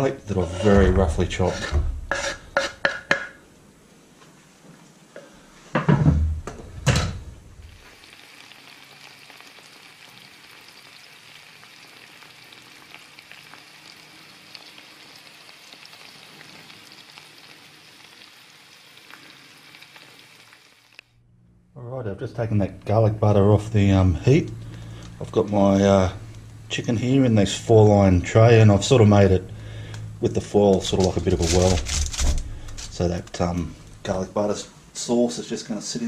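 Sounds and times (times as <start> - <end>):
thumps: 0.6 - 3.4
garlic sizzling in butter: 7.7 - 21.0.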